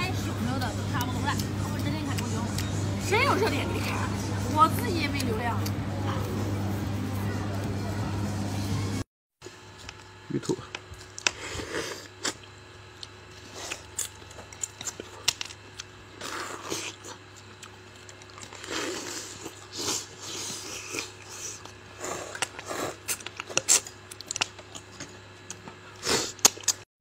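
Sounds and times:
chewing with wet smacks: 0:00.1 - 0:06.4, 0:12.2 - 0:26.8.

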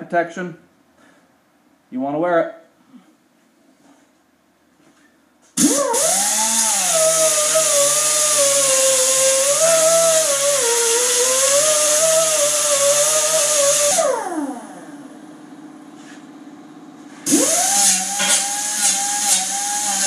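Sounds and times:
air angle grinder grinding steel: 0:05.6 - 0:14.6, 0:17.3 - 0:20.0.

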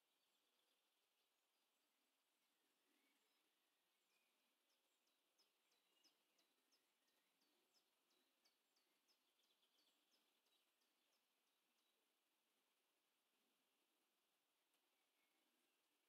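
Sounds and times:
small bird chirping: 0:03.0 - 0:12.0.

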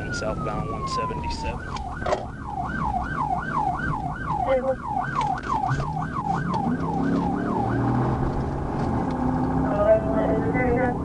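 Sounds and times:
police siren yelping: 0:00.0 - 0:08.7
engine and road noise: 0:00.0 - 0:11.0.

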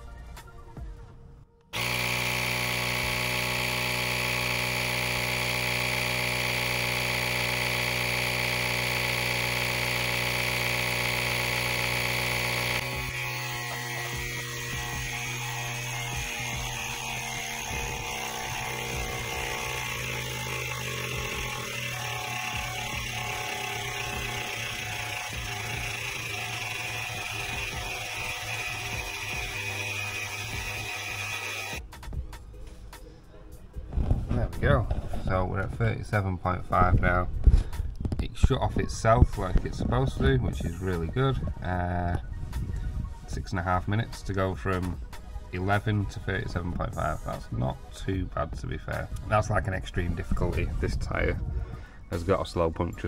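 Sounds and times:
small air compressor running: 0:01.7 - 0:31.9.

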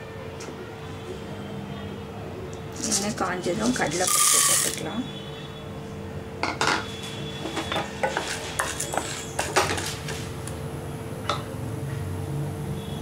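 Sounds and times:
spatula knocking and scraping pan: 0:06.5 - 0:10.3.

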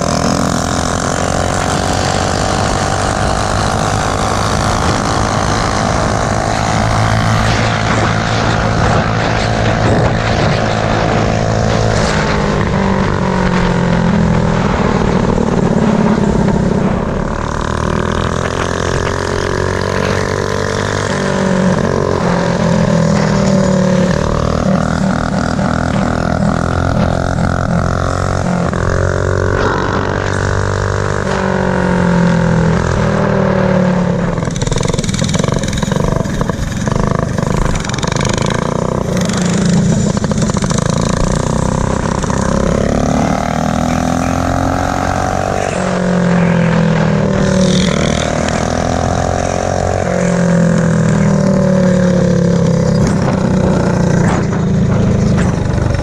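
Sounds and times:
wind on microphone: 0:00.0 - 0:33.3
minibike engine revving: 0:00.0 - 0:56.0.

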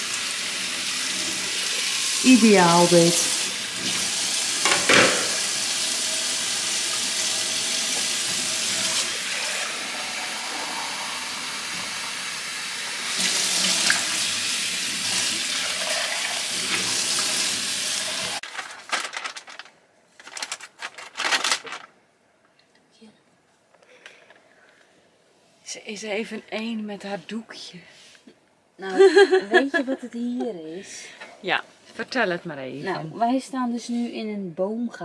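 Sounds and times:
tap water running into sink: 0:03.2 - 0:18.4.

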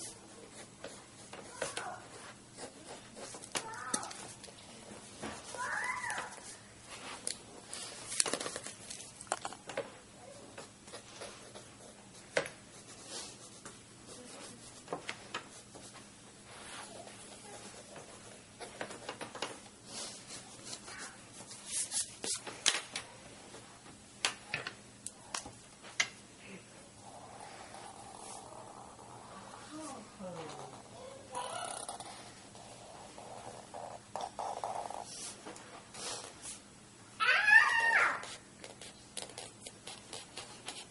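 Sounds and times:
pencil scratching on paper: 0:00.0 - 0:04.4, 0:10.6 - 0:19.1, 0:27.0 - 0:29.9, 0:30.7 - 0:35.4, 0:38.2 - 0:40.9.

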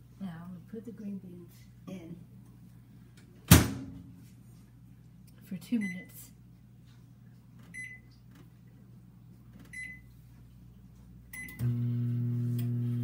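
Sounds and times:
microwave keypad beeping: 0:07.7 - 0:08.1, 0:09.7 - 0:10.1, 0:11.4 - 0:11.8
microwave oven humming: 0:11.3 - 0:13.0.

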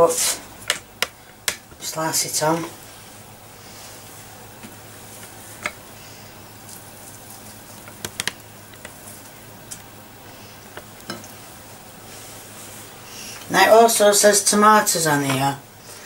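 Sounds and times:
small clicks and taps: 0:07.8 - 0:09.0.

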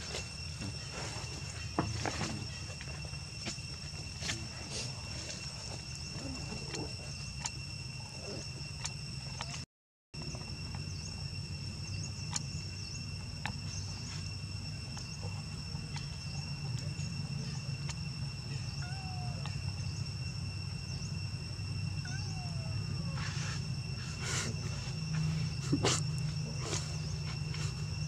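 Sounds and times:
insect chorus drone: 0:00.0 - 0:28.0
faint chirps and clicks: 0:06.2 - 0:09.6, 0:11.8 - 0:20.1.

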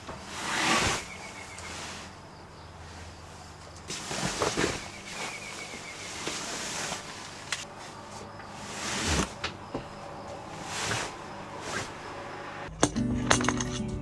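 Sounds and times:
fabric rustling: 0:00.2 - 0:02.2, 0:02.8 - 0:09.4, 0:10.6 - 0:12.2.

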